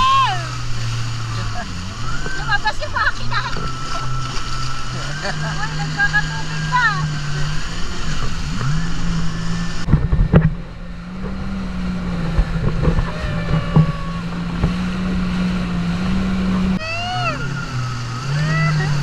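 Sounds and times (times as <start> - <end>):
jet ski engine running: 0.0 - 19.0.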